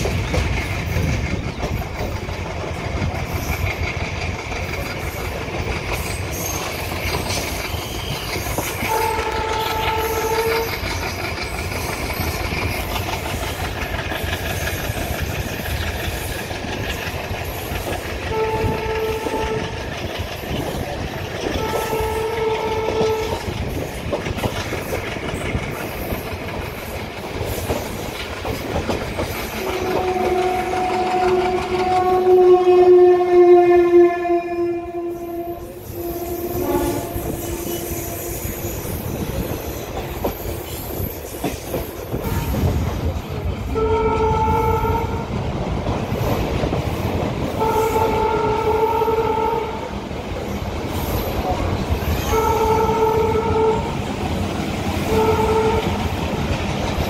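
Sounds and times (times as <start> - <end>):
train rumbling and clattering: 0.0 - 57.0
diesel locomotive horn blasts: 8.8 - 11.0, 18.2 - 20.0, 21.4 - 23.6, 29.6 - 38.7, 42.2 - 42.9, 43.7 - 45.3, 47.6 - 50.0, 52.0 - 54.2, 54.8 - 56.2.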